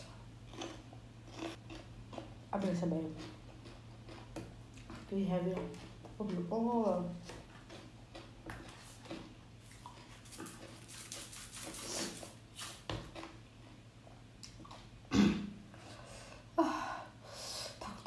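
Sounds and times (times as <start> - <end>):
chewing: 0.5 - 2.4, 3.1 - 6.5, 7.2 - 13.8.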